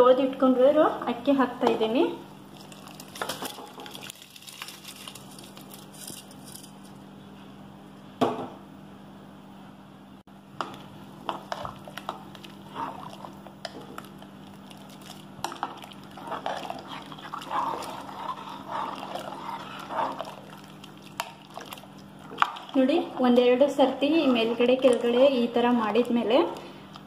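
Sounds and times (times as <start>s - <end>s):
steady low hum: 0.0s - 27.0s
liquid sloshing in a pot: 10.6s - 26.6s.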